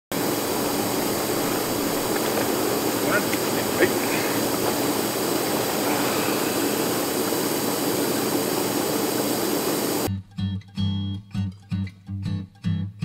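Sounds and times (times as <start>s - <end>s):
hot tub air jets churning water: 0.1s - 10.1s
strummed guitar music: 10.1s - 13.0s.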